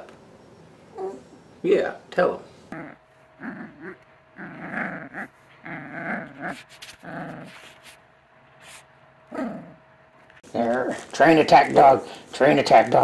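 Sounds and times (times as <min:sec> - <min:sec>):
puppy growling: 0:00.9 - 0:01.5, 0:02.7 - 0:07.8, 0:09.2 - 0:09.9.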